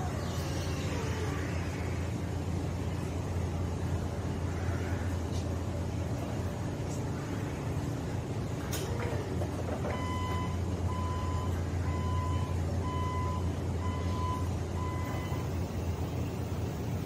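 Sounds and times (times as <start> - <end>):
warning beeper: 10.0 - 15.7.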